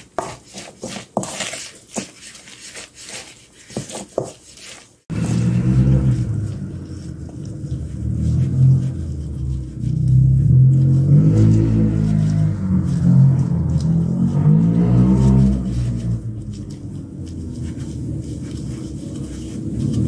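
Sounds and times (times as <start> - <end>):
spoon scraping metal bowl: 0.0 - 20.0
loud low drone: 5.1 - 19.0.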